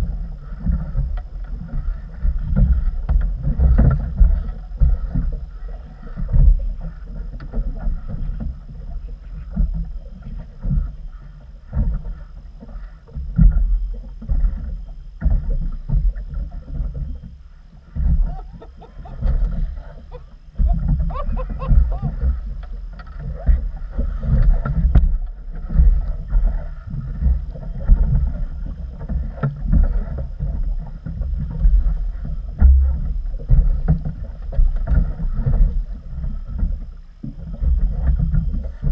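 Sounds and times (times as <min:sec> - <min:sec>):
water slapping against boat hull: 0:00.0 - 0:38.9
wind buffeting microphone: 0:14.4 - 0:36.9.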